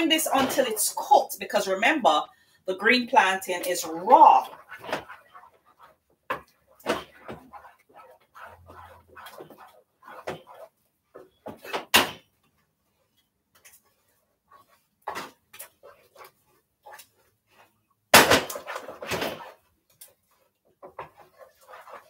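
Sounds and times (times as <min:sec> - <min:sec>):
wooden spoon scraping a pot: 0:00.0 - 0:22.0.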